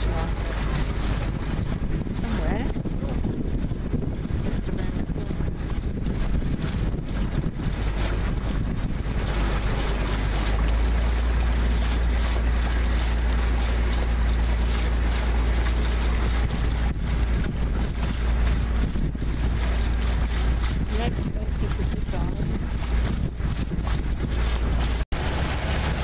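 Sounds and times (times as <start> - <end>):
boat engine running: 0.0 - 26.0
wind on microphone: 0.0 - 26.0.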